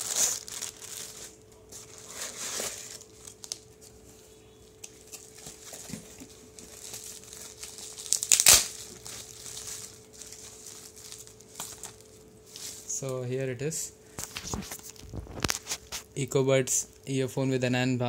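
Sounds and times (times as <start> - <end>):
plastic packaging crinkling: 0.0 - 4.0, 4.7 - 13.0, 14.1 - 16.1.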